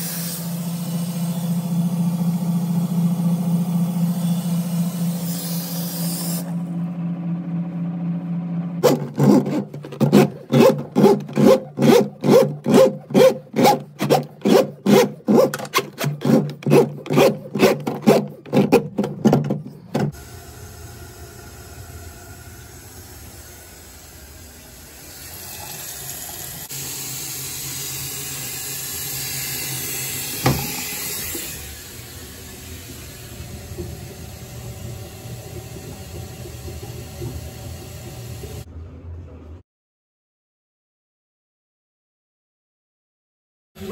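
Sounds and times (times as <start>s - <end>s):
loud even strokes: 8.8s - 19.9s.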